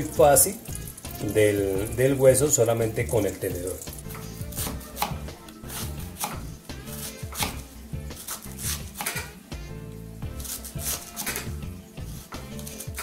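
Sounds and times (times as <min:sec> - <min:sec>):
knife slicing onion on board: 0:04.1 - 0:09.7, 0:10.3 - 0:13.0.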